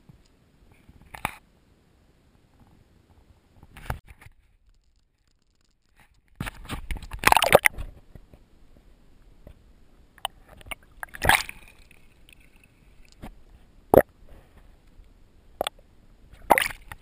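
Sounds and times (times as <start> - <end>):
low underwater noise: 4.4 - 17.0
sharp underwater clicks: 4.7 - 7.8, 16.4 - 17.0.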